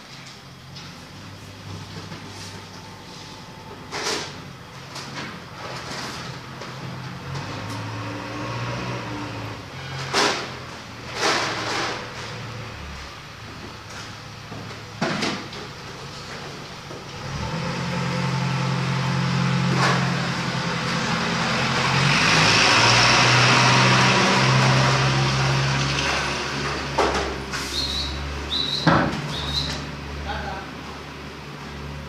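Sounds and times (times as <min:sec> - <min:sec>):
vehicle engine hum: 0:00.0 - 0:32.0
rush of passing vehicle: 0:07.3 - 0:10.5, 0:17.1 - 0:30.4.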